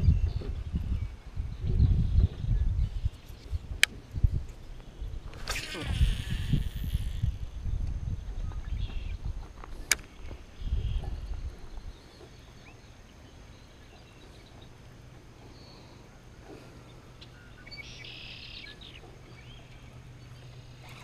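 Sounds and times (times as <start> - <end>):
steady low hum: 0.0 - 21.0
bird chirps: 17.2 - 21.0.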